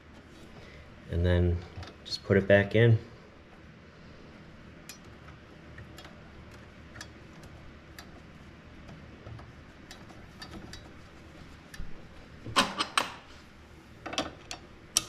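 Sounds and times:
light metallic ticks and clicks: 5.7s - 8.2s, 8.8s - 11.0s.

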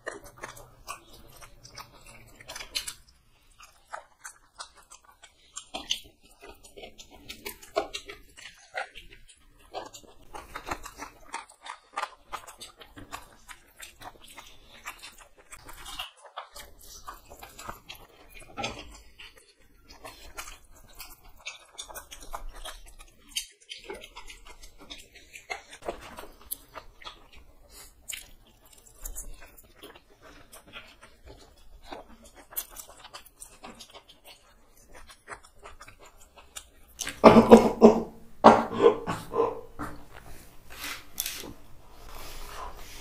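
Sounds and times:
people chewing and smacking: 0.0s - 43.0s.

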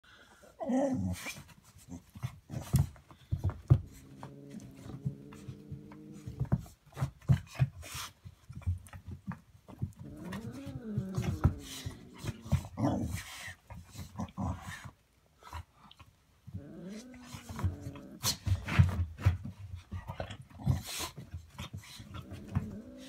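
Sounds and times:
taps and thumps: 2.1s - 14.2s
dog grumbling: 3.7s - 6.6s, 9.8s - 13.3s, 16.5s - 18.7s, 22.0s - 23.0s
dog whining: 10.0s - 12.5s.

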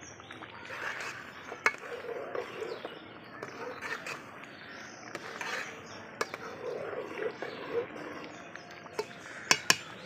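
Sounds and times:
birds chirping: 0.0s - 10.0s
pot of rice boiling: 0.0s - 10.0s
spoon knocking on pot: 9.0s - 10.0s.

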